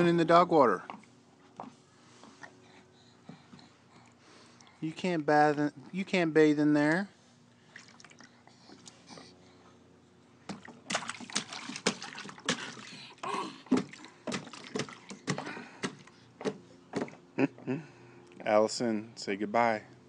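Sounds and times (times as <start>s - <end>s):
hands splashing in water bowl: 7.7s - 8.3s, 10.5s - 16.1s.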